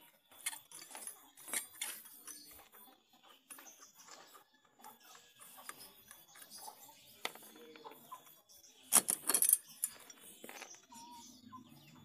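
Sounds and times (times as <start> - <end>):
metallic clicks and scrapes: 0.2 - 2.7, 8.9 - 11.0.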